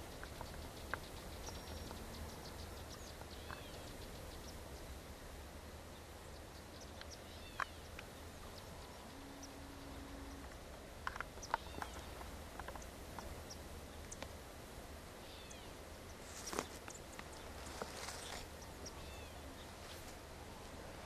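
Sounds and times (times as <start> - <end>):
bird chirps and calls: 0.0 - 4.9, 15.2 - 20.0
low steady hum: 0.0 - 21.0.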